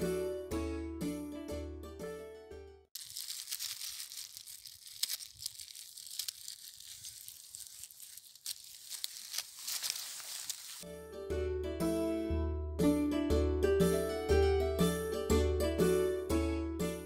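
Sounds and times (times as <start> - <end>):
plastic crinkling: 3.0 - 10.8
twig rustle: 3.0 - 10.8.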